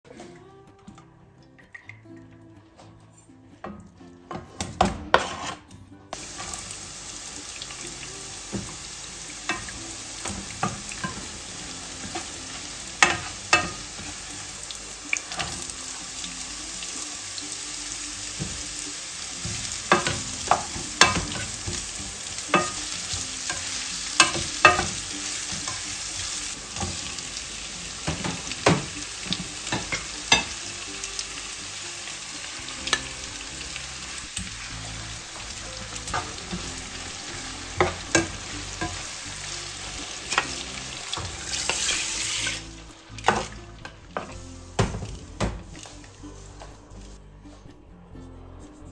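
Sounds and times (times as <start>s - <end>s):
spatula scraping a pan: 5.0s - 5.7s, 41.5s - 42.7s
food sizzling in hot oil: 6.1s - 45.2s.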